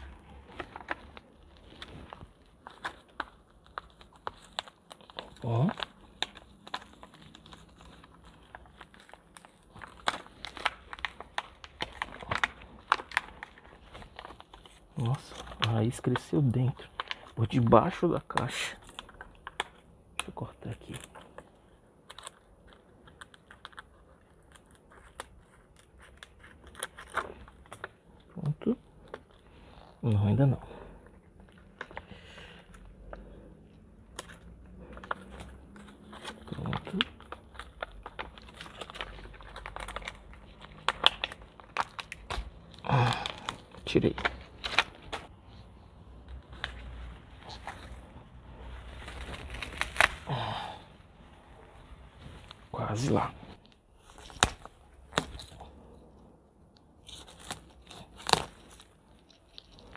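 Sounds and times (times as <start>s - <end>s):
soil and roots crackling: 0.0s - 59.9s
scissors cutting plastic: 34.1s - 45.3s
root snapping: 49.2s - 50.6s, 54.2s - 55.7s, 57.0s - 59.9s.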